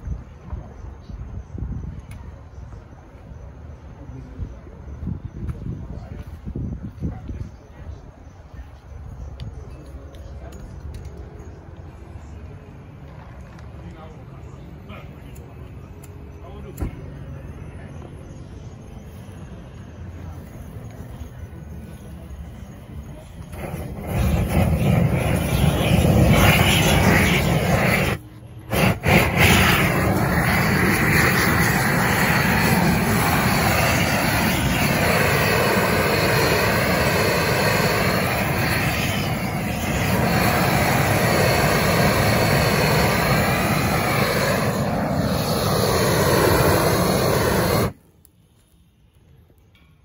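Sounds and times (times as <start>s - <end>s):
propane torch roaring: 18.7s - 49.1s.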